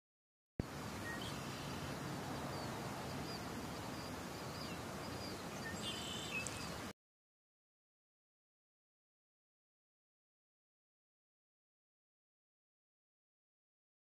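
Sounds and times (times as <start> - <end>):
outdoor background hiss: 0.6 - 6.9
faint bird chirps: 1.0 - 6.9.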